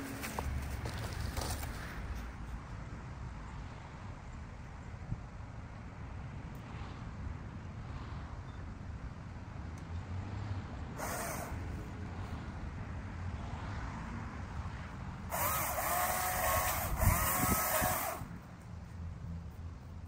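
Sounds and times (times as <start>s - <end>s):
electric saw revving: 11.0s - 11.9s, 15.3s - 18.4s.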